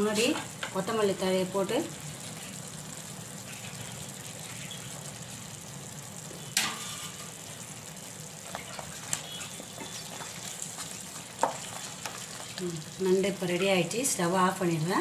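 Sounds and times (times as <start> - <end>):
masala sizzling in a pan: 0.0 - 15.0
wooden spatula stirring pan: 8.4 - 13.8.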